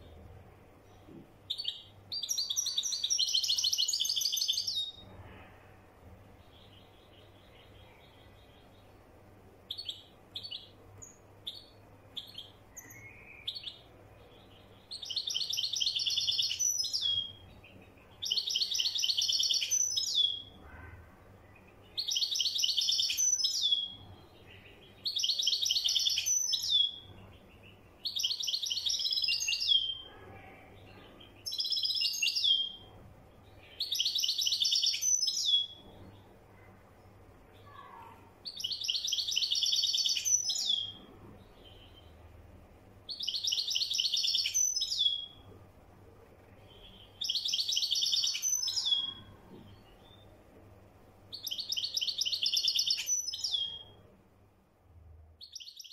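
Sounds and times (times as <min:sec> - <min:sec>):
goldfinch singing trilled phrases: 0:01.5 - 0:05.0, 0:14.6 - 0:17.5, 0:18.2 - 0:20.6, 0:22.0 - 0:24.0, 0:24.6 - 0:27.0, 0:28.0 - 0:30.0, 0:31.4 - 0:32.8, 0:33.7 - 0:35.8, 0:38.5 - 0:41.0, 0:43.1 - 0:45.4, 0:46.9 - 0:49.2, 0:51.3 - 0:54.0.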